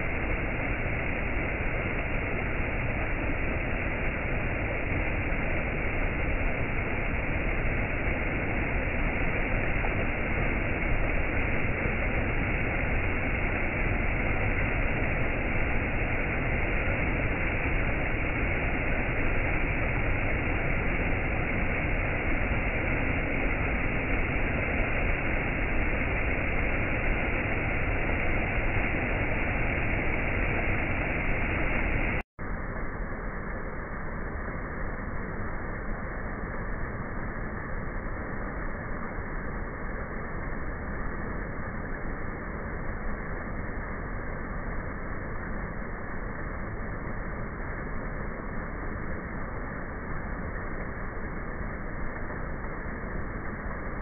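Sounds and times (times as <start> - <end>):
water rushing over rocks: 0.0 - 32.2.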